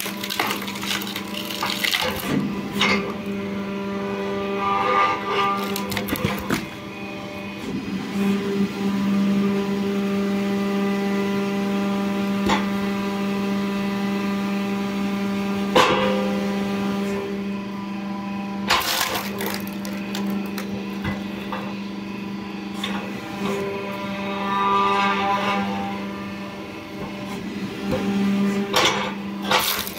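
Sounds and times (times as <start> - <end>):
wood splitting cracks: 0.0 - 3.1, 5.6 - 6.8, 18.7 - 20.8, 29.4 - 29.9
log splitter motor humming: 0.0 - 24.9, 25.6 - 29.9.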